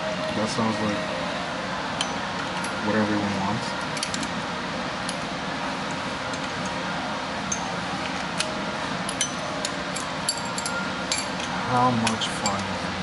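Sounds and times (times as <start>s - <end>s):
socket wrench metallic clinks: 9.1s - 12.7s.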